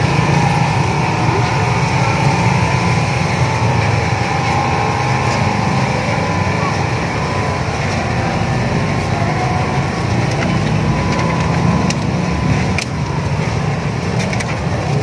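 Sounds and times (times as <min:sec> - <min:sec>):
crowd footsteps shuffling: 0:00.0 - 0:15.0
low engine-like drone: 0:00.0 - 0:15.0.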